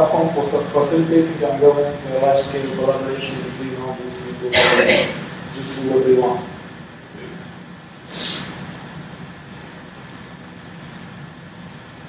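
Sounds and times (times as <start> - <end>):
even hiss: 8.1 - 8.6.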